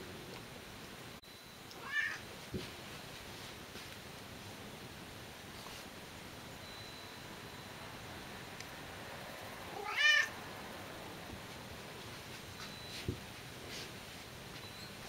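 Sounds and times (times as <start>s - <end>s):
cat meowing: 1.8s - 2.2s, 9.7s - 10.3s.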